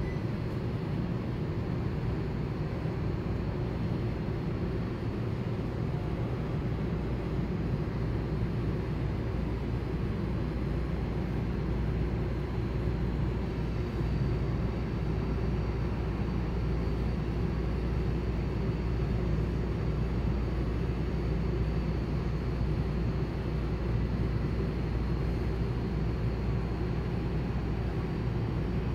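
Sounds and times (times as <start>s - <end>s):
faint high whine: 0.0s - 1.3s
low mechanical rumble: 0.0s - 28.9s.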